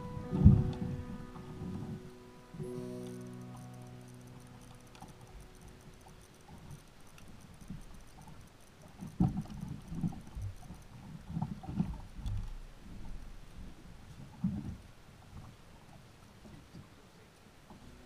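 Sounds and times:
held music chord: 0:00.0 - 0:06.7.

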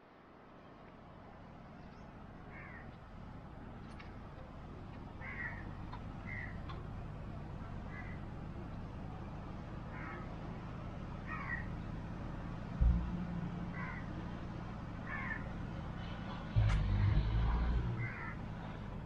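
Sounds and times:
harsh bird calls: 0:05.2 - 0:06.8, 0:15.0 - 0:15.5, 0:16.2 - 0:18.4
low thump: 0:12.8 - 0:13.5
low rumble: 0:12.8 - 0:14.9, 0:16.0 - 0:18.0.

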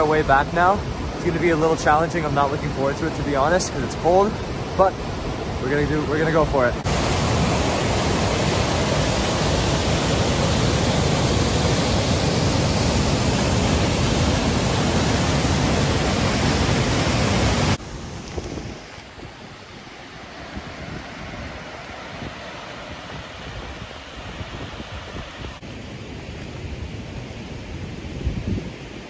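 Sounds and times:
river rushing over rocks: 0:00.0 - 0:25.6
wind on microphone: 0:06.9 - 0:29.0.

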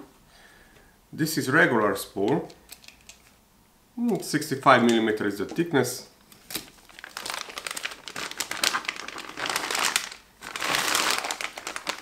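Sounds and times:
plastic bag crinkling and rustling: 0:04.7 - 0:12.0.

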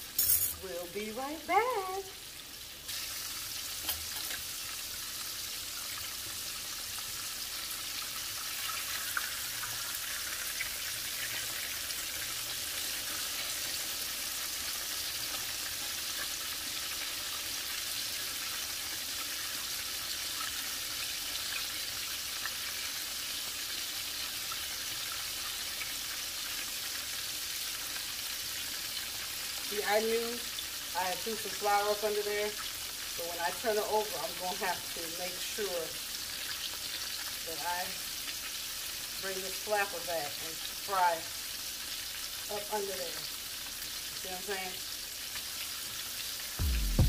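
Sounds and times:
oil sizzling: 0:00.0 - 0:47.0.

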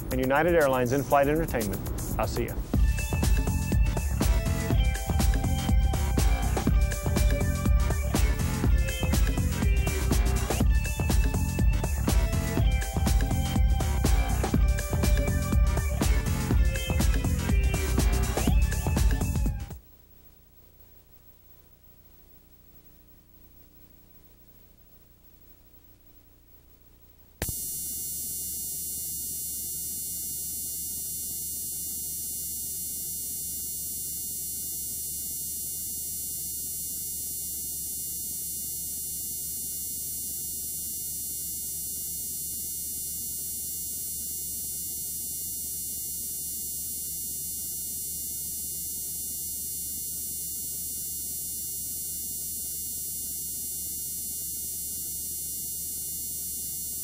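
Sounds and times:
low hum: 0:00.0 - 0:03.1
electronic buzz and hiss: 0:00.0 - 0:57.0.

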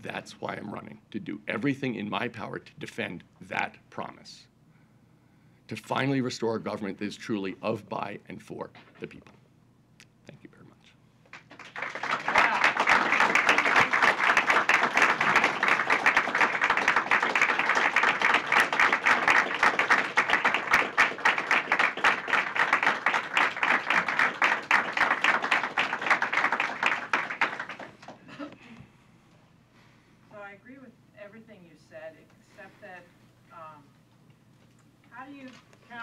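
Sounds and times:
audience applauding: 0:11.3 - 0:28.4.

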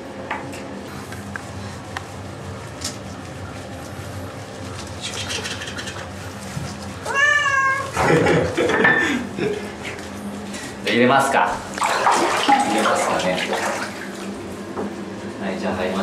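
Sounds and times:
cat meowing: 0:07.0 - 0:08.0.

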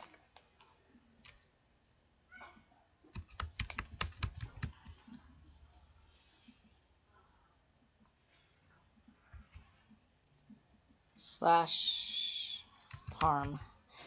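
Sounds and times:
computer keyboard typing: 0:01.2 - 0:01.5, 0:03.1 - 0:05.2, 0:12.7 - 0:13.7.

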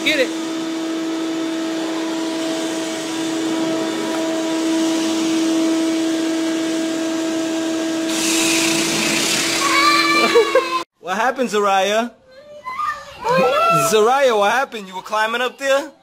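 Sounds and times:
vacuum cleaner droning: 0:00.0 - 0:10.8.

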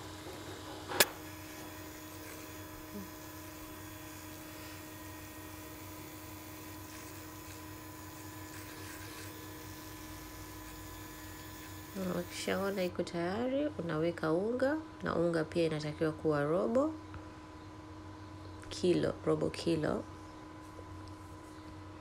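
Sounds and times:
electric hand mixer whisking batter: 0:00.0 - 0:12.9.

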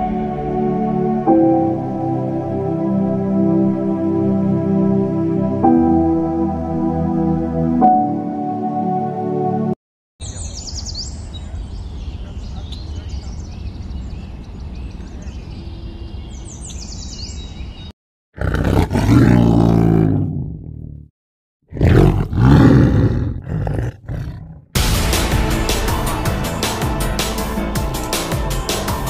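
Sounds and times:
music: 0:00.0 - 0:09.8, 0:24.8 - 0:29.0
outdoor background: 0:00.0 - 0:29.0
deep animal roars: 0:18.4 - 0:21.1, 0:21.7 - 0:24.8.

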